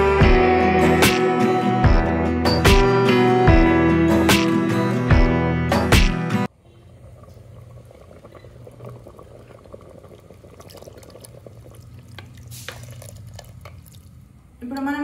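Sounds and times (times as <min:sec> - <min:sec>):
slurry pouring into stew: 0:07.2 - 0:14.2.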